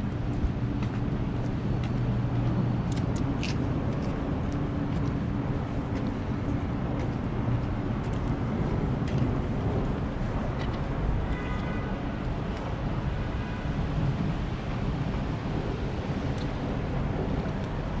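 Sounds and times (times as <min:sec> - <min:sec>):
low engine hum: 0:00.0 - 0:11.3
city traffic noise: 0:00.0 - 0:18.0.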